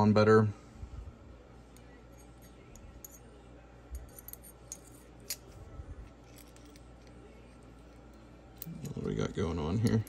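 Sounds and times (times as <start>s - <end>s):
metal bolt parts clicking and scraping: 6.2s - 7.1s.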